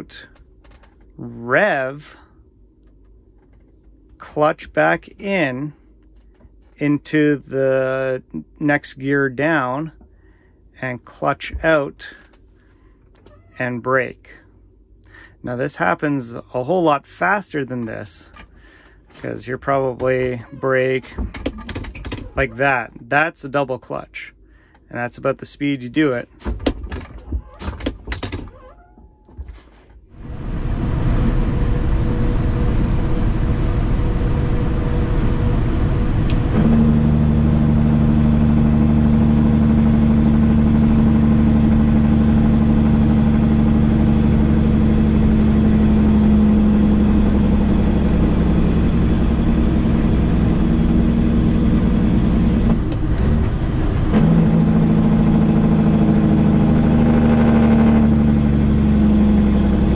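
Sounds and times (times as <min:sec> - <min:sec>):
truck diesel engine pulling: 0:15.4 - 0:23.2, 0:29.5 - 0:59.9
high whine: 0:30.2 - 0:59.9.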